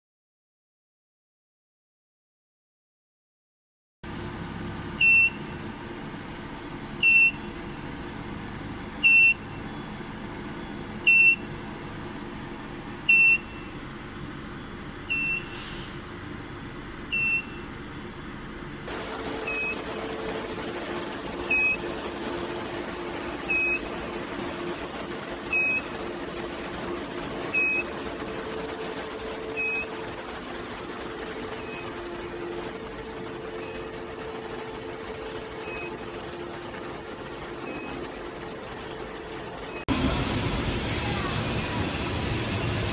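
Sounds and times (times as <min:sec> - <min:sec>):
thin high whine: 0:04.0 - 0:18.9
machine humming: 0:04.0 - 0:21.1, 0:39.9 - 0:42.9
short high beeps: 0:04.1 - 0:18.9.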